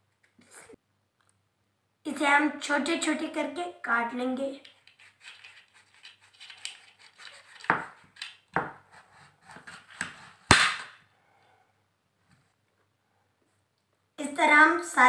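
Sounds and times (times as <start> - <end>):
knife cutting fruit on a plate: 4.6 - 10.9.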